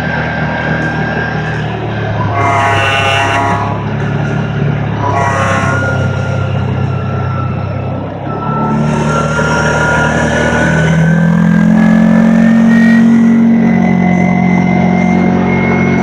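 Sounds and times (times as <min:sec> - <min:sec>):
atv engine accelerating: 0:00.0 - 0:16.0.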